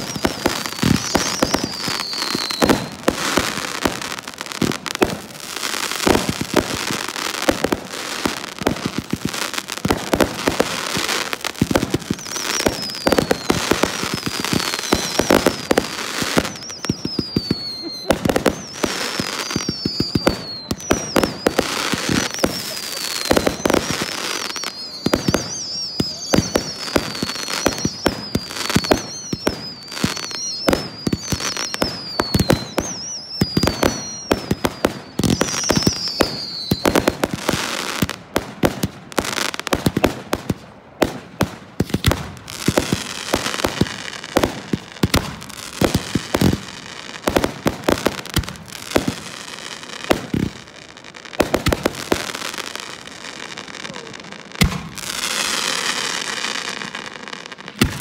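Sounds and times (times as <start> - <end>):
wavering falling whistles: 0.0 - 3.1, 12.1 - 37.1
crackling hiss: 0.0 - 58.0
firework bangs: 0.0 - 58.0.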